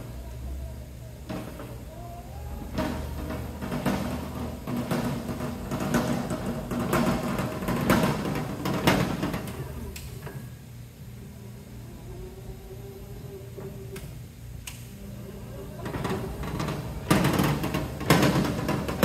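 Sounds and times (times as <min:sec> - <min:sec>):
pallet jack forks rattling: 0:01.3 - 0:09.8, 0:15.7 - 0:19.0.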